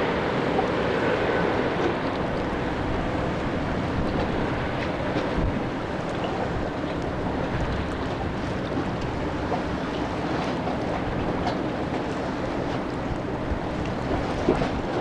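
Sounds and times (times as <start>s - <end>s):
distant jet airliner: 0.0s - 15.0s
wind buffeting microphone: 0.0s - 15.0s.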